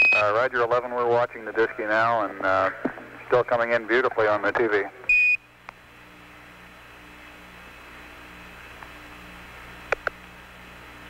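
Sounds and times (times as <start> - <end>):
short radio beep tone: 0.0 - 0.3
radio channel hiss: 0.0 - 5.1
faint hum: 0.0 - 11.0.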